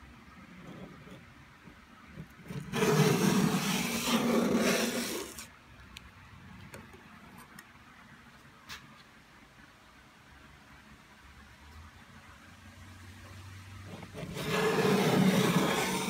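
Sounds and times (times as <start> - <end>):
putty knife scraping paint off wood: 2.5 - 5.4, 14.0 - 16.0.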